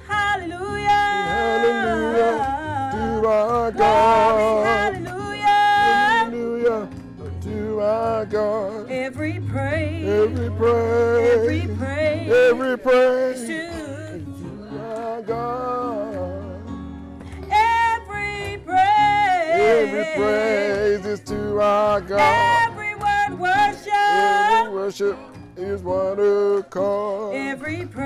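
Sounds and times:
gospel singing with vibrato: 0:00.0 - 0:28.0
instrumental accompaniment with bass: 0:00.0 - 0:28.0.

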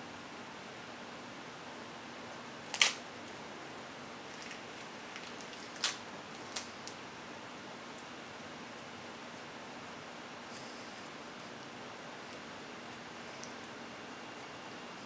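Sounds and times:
steady hiss: 0:00.0 - 0:15.0
nori sheets crackling: 0:04.2 - 0:07.0.

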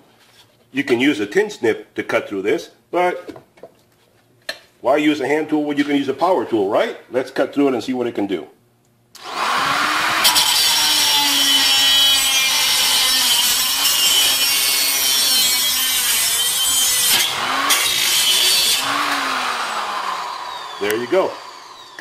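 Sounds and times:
cut-off wheel grinding metal: 0:09.2 - 0:22.0
motor whine: 0:18.8 - 0:22.0.

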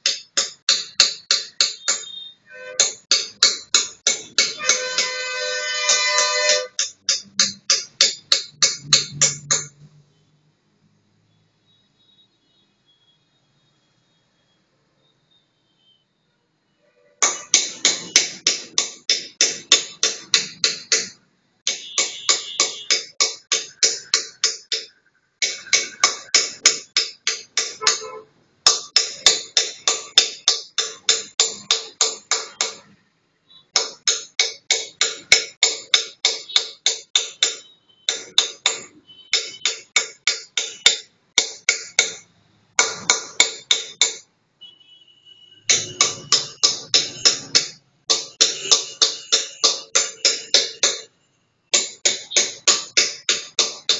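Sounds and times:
engraving tool tapping stone: 0:00.0 - 0:02.2, 0:02.8 - 0:09.8, 0:17.2 - 0:28.0, 0:28.6 - 0:32.9, 0:33.8 - 0:44.3, 0:45.7 - 0:51.1, 0:51.7 - 0:53.9.

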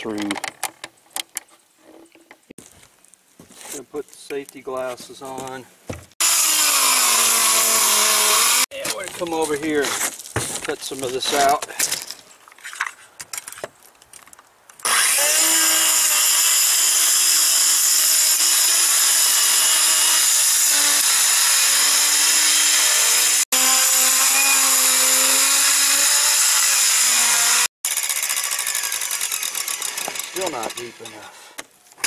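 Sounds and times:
circular saw cutting roofing: 0:06.2 - 0:08.7, 0:14.8 - 0:31.6.

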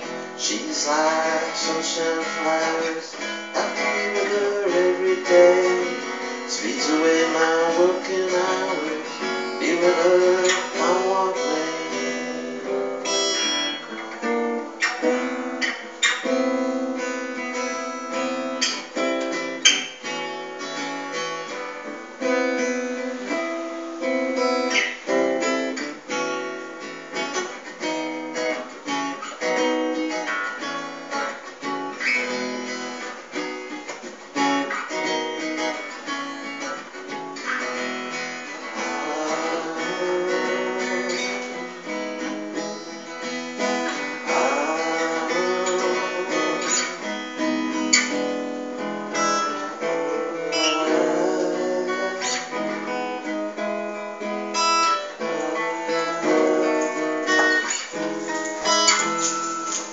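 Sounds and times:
acoustic guitar strumming: 0:00.0 - 0:59.9.

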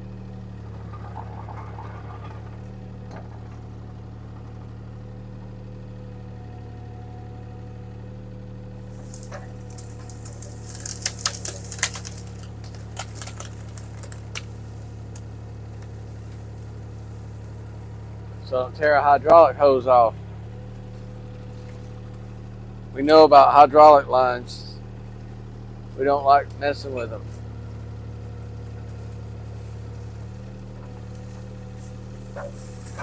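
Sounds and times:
diesel engine running: 0:00.0 - 0:33.0
branches crackling and snapping: 0:08.6 - 0:18.6, 0:20.1 - 0:23.2, 0:24.9 - 0:33.0.

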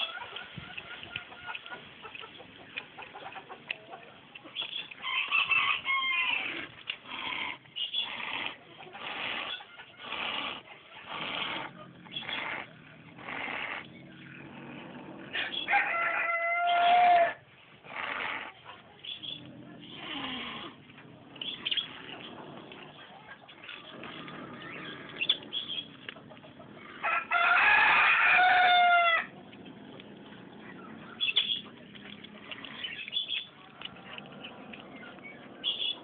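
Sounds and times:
wild cat hissing: 0:06.3 - 0:15.7, 0:17.8 - 0:18.6, 0:19.2 - 0:23.1, 0:23.8 - 0:27.0, 0:29.1 - 0:36.0
low growl: 0:06.3 - 0:15.8, 0:17.8 - 0:36.0
rooster crowing: 0:15.4 - 0:17.4, 0:27.0 - 0:29.3.

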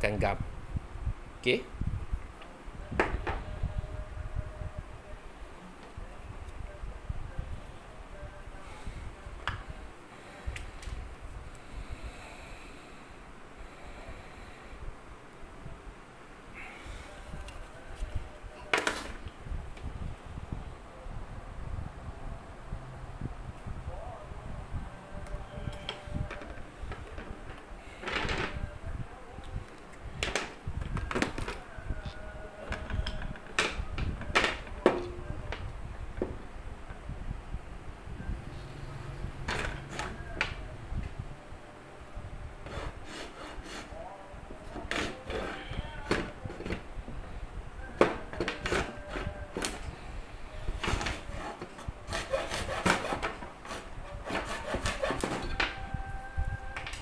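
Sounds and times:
hacksaw cutting plastic pipe: 0:44.7 - 0:46.7, 0:48.0 - 0:49.8, 0:50.8 - 0:55.8.

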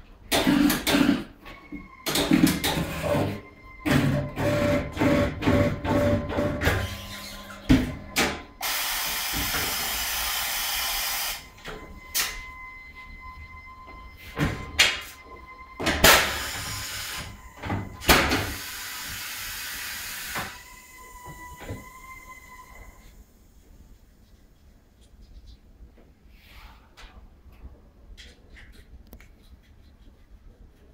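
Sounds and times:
pneumatic clunks: 0:00.3 - 0:12.7, 0:13.3 - 0:23.1
compressed air hissing: 0:08.6 - 0:11.4, 0:18.5 - 0:20.6.

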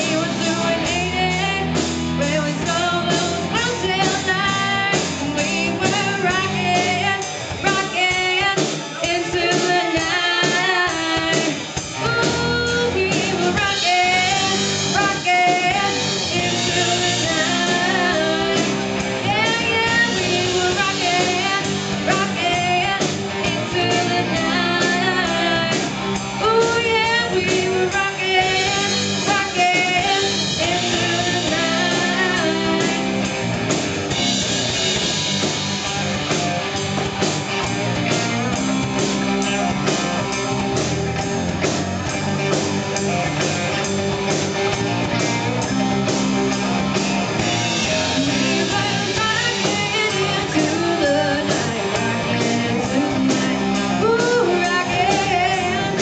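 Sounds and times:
woman singing: 0:00.0 - 0:33.2, 0:47.9 - 0:56.0
rock band playing: 0:00.0 - 0:56.0.

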